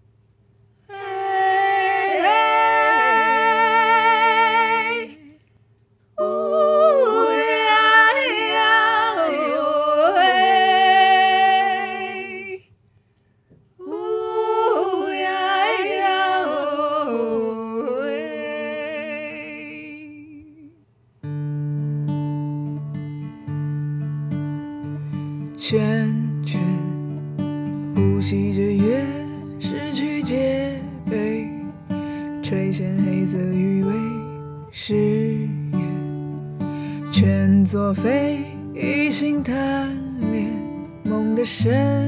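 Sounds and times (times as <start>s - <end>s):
acoustic guitar: 0.0s - 42.0s
wordless vocal with vibrato: 0.8s - 5.5s, 6.1s - 12.7s, 13.8s - 20.8s, 28.0s - 36.0s, 36.7s - 42.0s.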